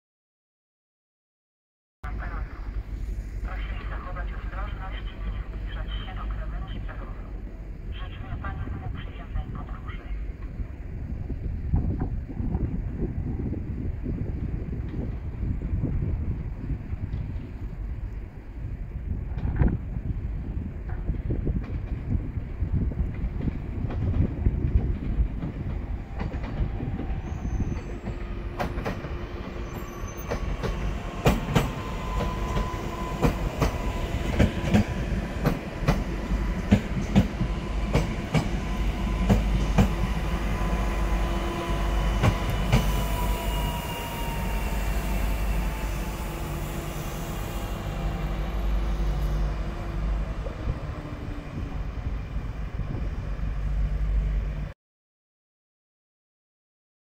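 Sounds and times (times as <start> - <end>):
train wheels clicking over rail joints: 23.0 - 40.0
electric train drive whine: 24.0 - 54.7.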